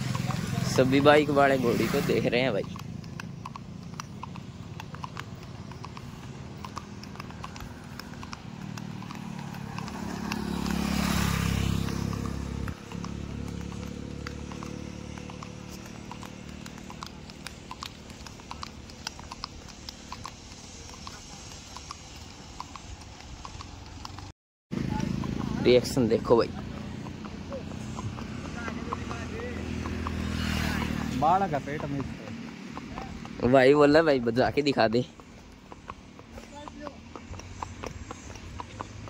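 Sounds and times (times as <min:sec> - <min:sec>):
horse hooves clip-clopping: 0:00.0 - 0:39.0
vehicle passing rumble: 0:00.0 - 0:39.0.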